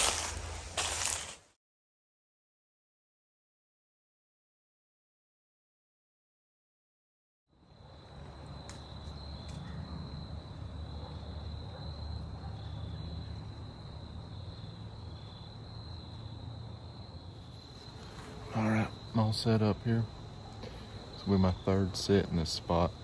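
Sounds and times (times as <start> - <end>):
insects trilling: 7.6 - 23.0.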